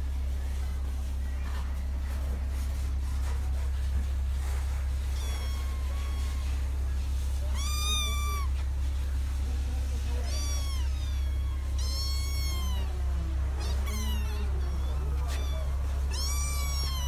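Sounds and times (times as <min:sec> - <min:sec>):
steady low hum: 0:00.0 - 0:17.0
kitten meowing: 0:05.1 - 0:06.7, 0:07.4 - 0:08.6, 0:10.1 - 0:17.0.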